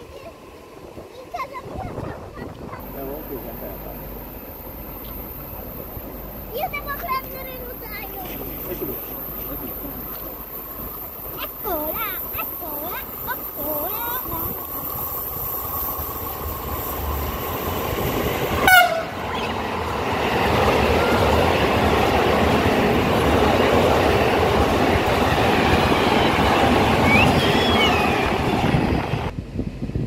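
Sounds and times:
freight train rolling past: 0.0s - 30.0s
train wheel squeals: 25.3s - 28.9s.

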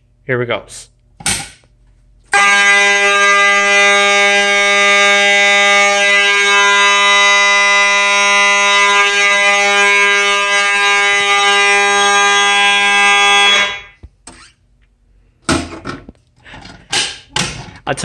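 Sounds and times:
fire alarm horn buzzing: 2.3s - 14.0s.

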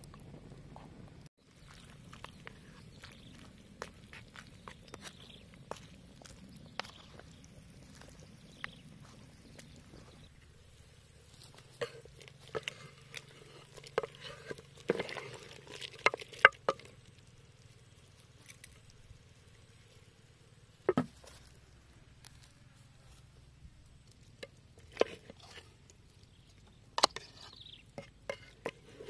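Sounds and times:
wooden spoon scraping and knocking: 11.5s - 16.9s, 24.8s - 25.8s, 27.0s - 29.0s.

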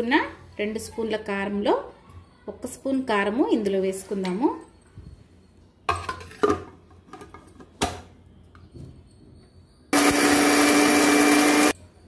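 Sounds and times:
electric mixer grinder running: 10.0s - 11.8s.

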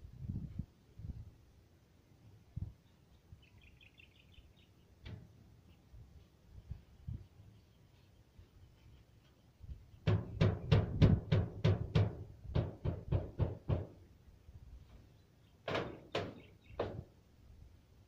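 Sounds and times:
pole knocking on roof: 10.0s - 14.0s, 15.7s - 17.1s.

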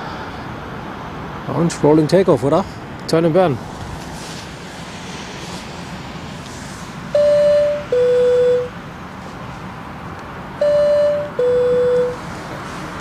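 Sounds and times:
two-tone electronic chime: 7.2s - 8.7s, 10.6s - 12.2s.

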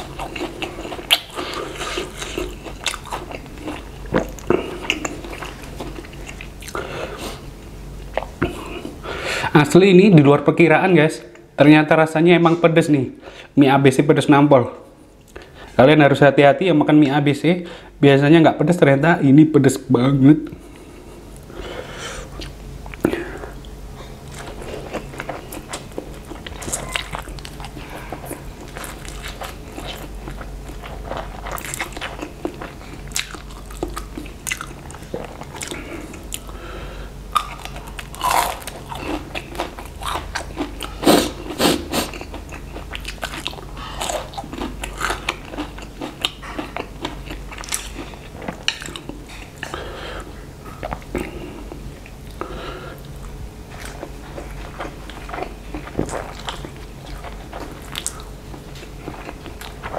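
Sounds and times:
chewing noodles with wet smacks: 42.0s - 49.7s.

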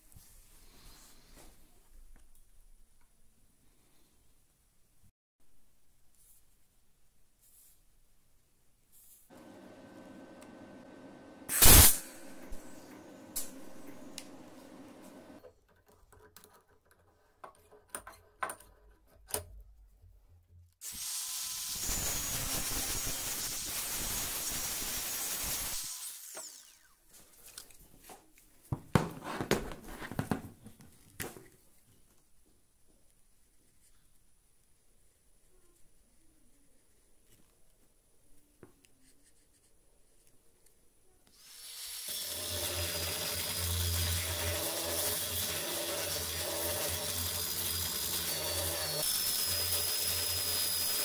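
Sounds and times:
cutoff disc grinding steel: 9.3s - 15.4s, 42.0s - 51.0s
small power tool motor running: 20.8s - 27.0s, 41.4s - 51.0s.

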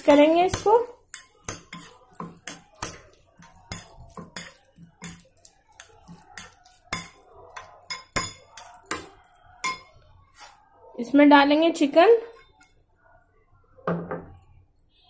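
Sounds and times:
spoon clinking against glass bowl: 0.5s - 10.0s.

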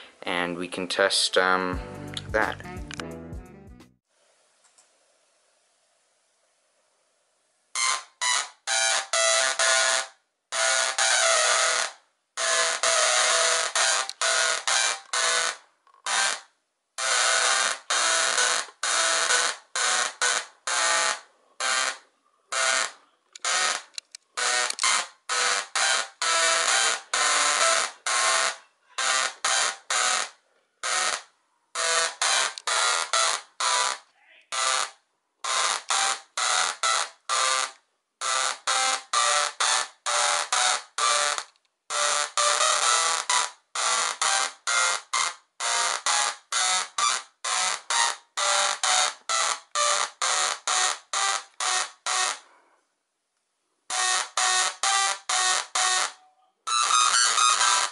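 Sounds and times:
tesla coil buzzing sparks: 17.0s - 31.2s, 56.7s - 57.9s
tesla coil electric buzz: 56.7s - 57.9s.

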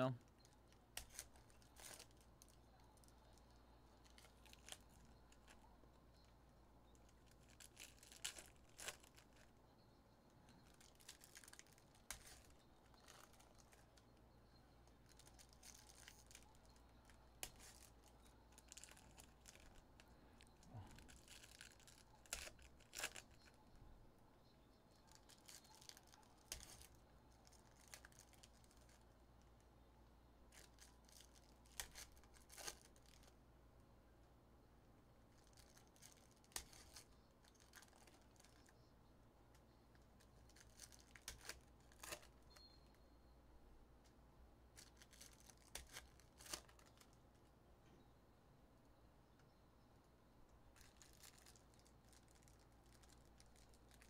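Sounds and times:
foil wrappers ripping and rustling: 7.2s - 9.4s, 20.9s - 23.4s.

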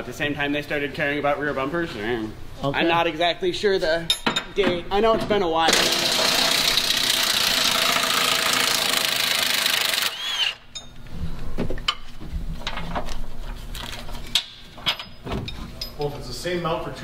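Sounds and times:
impact wrench running: 5.7s - 10.7s.

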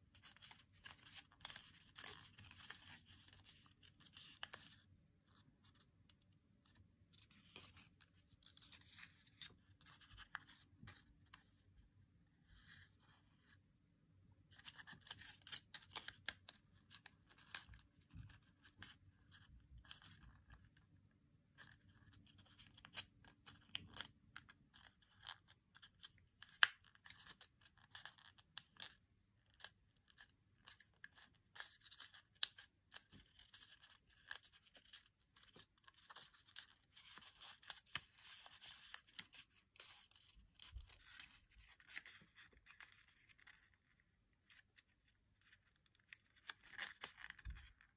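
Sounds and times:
soft clicks of paper creasing: 0.0s - 13.6s, 14.4s - 47.9s
paper crinkling: 0.1s - 5.9s, 26.5s - 47.9s.

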